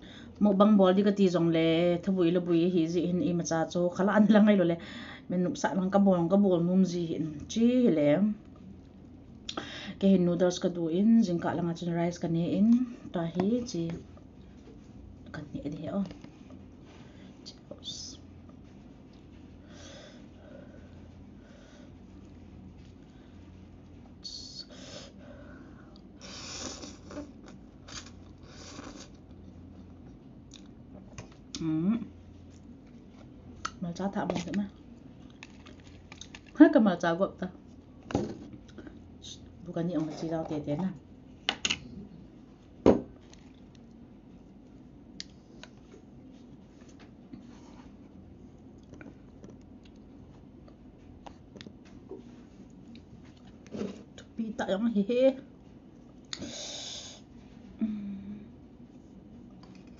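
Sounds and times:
person chewing noodles: 48.6s - 51.8s.

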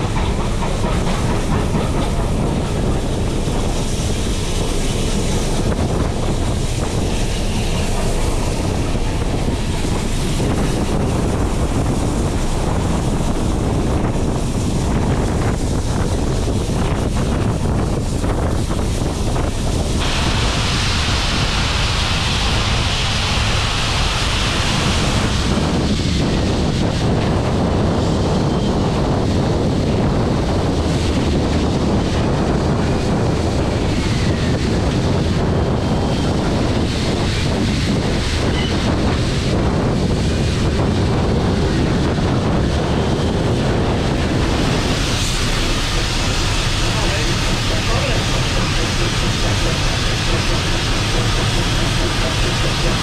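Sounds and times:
train rumbling along track: 0.0s - 53.0s
wind rushing on microphone: 0.0s - 53.0s
high hiss: 20.0s - 25.6s.

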